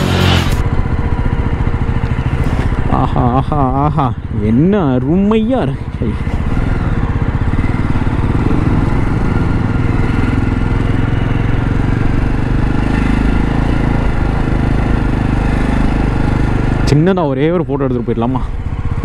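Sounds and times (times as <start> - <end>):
motorcycle engine running: 0.0 - 19.0
road and wind noise: 0.0 - 19.0.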